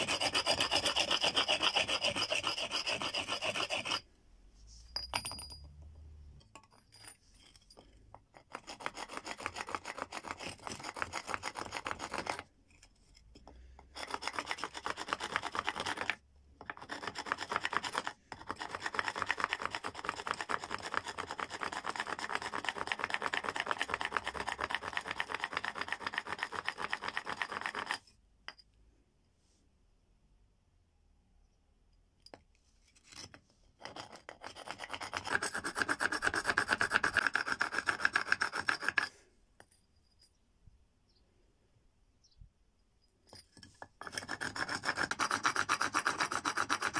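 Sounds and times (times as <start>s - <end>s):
bone rasping against stone: 0.0s - 4.1s, 6.6s - 28.6s, 32.9s - 39.8s, 43.3s - 46.9s.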